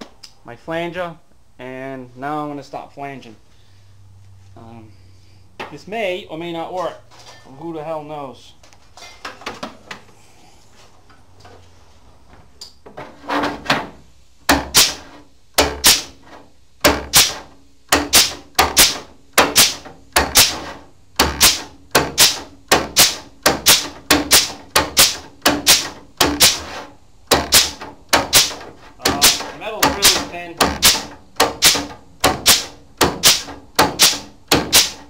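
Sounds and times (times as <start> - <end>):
pneumatic flanging tool clacking: 14.5 - 16.3, 16.9 - 35.0.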